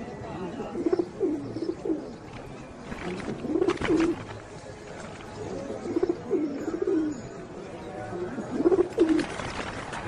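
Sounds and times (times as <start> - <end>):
pigeons cooing: 0.6 - 4.4, 5.4 - 7.3, 8.1 - 9.4.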